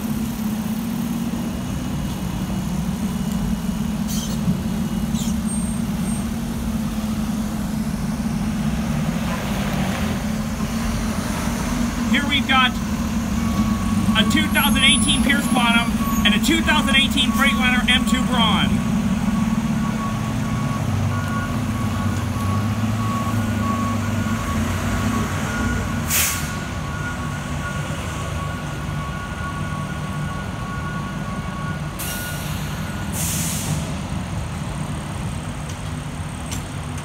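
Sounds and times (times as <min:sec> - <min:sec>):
engines idling: 0:00.0 - 0:37.0
truck backup alarms beeping: 0:00.1 - 0:09.3, 0:10.1 - 0:33.9
air brake hisses: 0:04.1 - 0:04.4, 0:26.1 - 0:26.6, 0:32.0 - 0:33.9.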